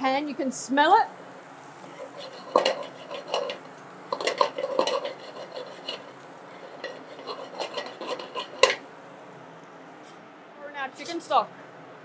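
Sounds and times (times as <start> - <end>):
wooden spoon scraping metal pot: 1.9 - 8.9.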